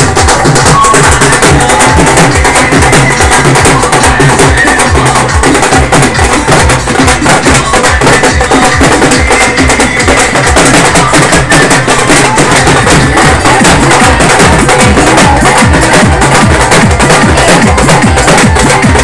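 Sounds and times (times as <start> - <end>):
dhol drums beating: 0.0 - 19.0
music: 0.0 - 19.0.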